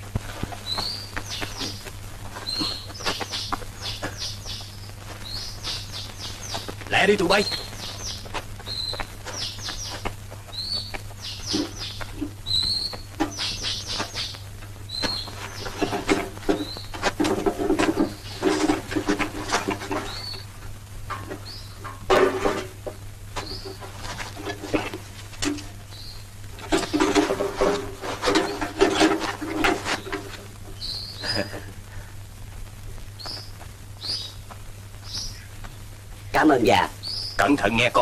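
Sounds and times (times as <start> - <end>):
low steady hum: 0.0 - 38.0
small birds chirping: 0.2 - 20.6, 21.2 - 22.2, 22.9 - 32.2, 32.8 - 38.0
metal parts clattering and rustling: 26.6 - 30.4.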